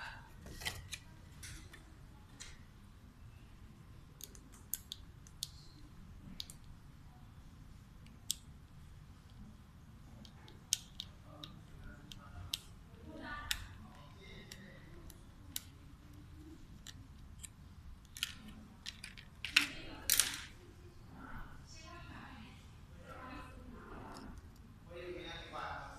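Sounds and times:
plastic toy parts clicking: 16.8 - 20.5.

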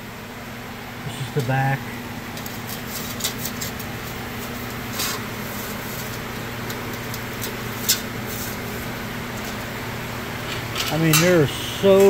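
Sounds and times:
steady low hum: 0.0 - 12.0
hand scraping aluminium sheet: 2.7 - 6.2.

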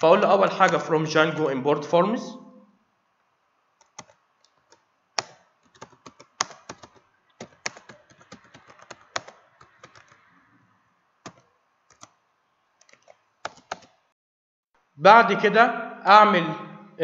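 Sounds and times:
typing on computer keyboard: 3.8 - 10.2, 11.2 - 12.2, 12.8 - 14.0.

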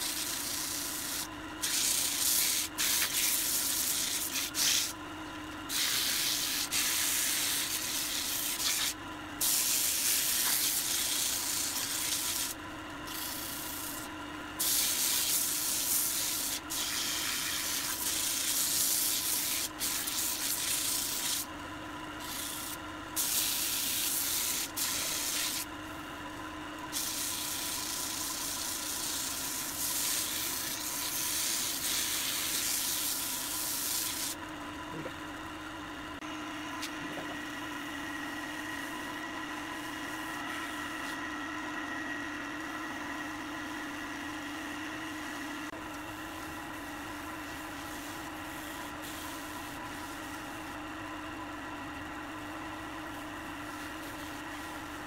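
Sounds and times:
sandpaper hissing on wood: 0.0 - 4.9, 5.7 - 21.5, 22.2 - 25.7, 26.9 - 34.4
lathe humming: 0.0 - 15.0, 15.6 - 55.0.

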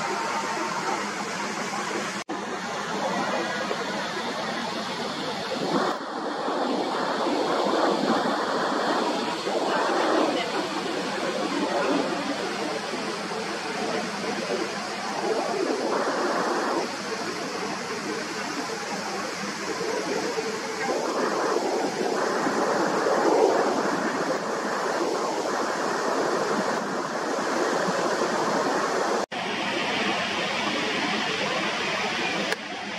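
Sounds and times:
jet engines roaring: 0.0 - 32.9.

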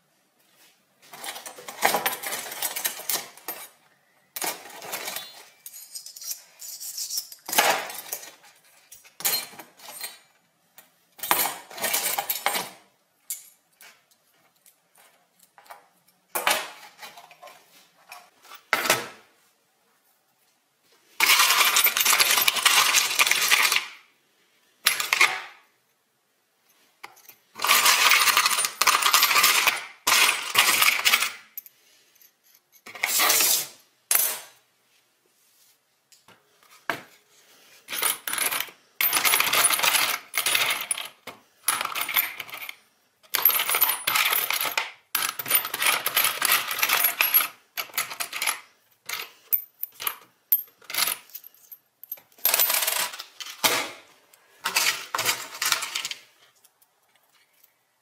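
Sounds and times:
metal bolts clinking in plastic bin: 1.1 - 10.4, 11.2 - 13.5, 21.2 - 23.8, 27.0 - 31.6, 37.9 - 53.8, 54.6 - 56.3.

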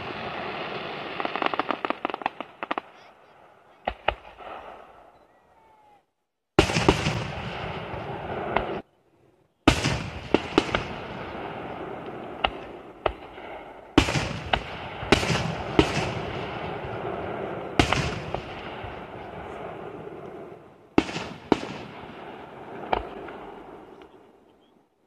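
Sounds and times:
firework bangs: 0.0 - 5.0, 6.6 - 8.8, 9.7 - 24.1
rumble of distant bursts: 6.6 - 25.0.

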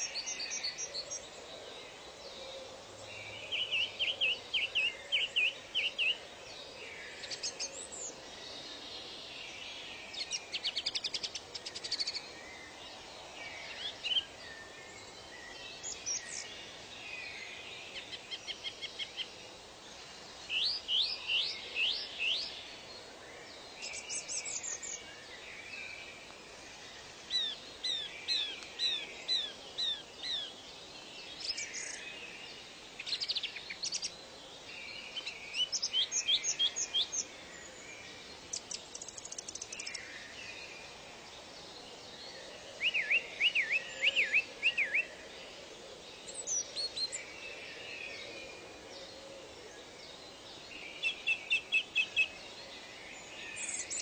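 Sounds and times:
steady background hiss: 0.0 - 54.0
birds chirping and singing: 27.3 - 41.0, 42.2 - 54.0.

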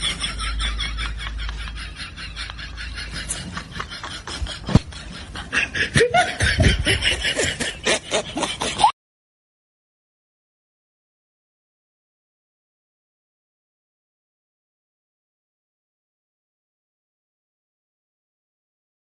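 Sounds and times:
person snickering and chuckling: 0.0 - 9.0.

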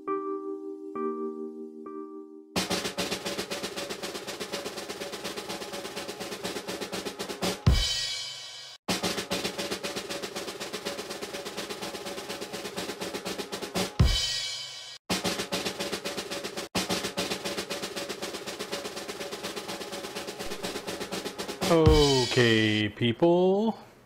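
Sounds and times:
fast driving drum beat: 2.6 - 22.8
loud hit: 20.4 - 22.6.

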